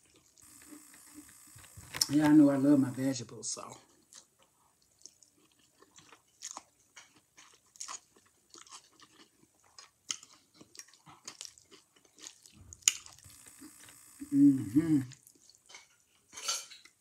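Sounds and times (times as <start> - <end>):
person chewing food: 0.0 - 2.4, 3.7 - 17.0.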